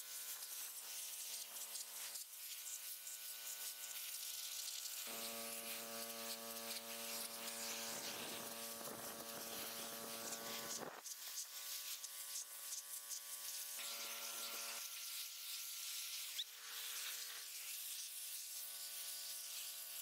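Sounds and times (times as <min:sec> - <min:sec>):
water jet hissing on concrete: 0:00.0 - 0:20.0
pressure washer humming: 0:05.1 - 0:10.8.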